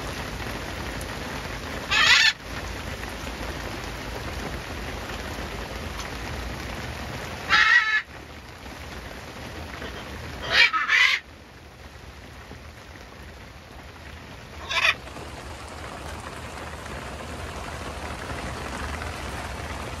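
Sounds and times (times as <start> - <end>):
steady rain: 0.0 - 20.0
macaw squawking loudly: 1.9 - 2.4, 7.5 - 8.1, 10.4 - 11.2, 14.6 - 15.0.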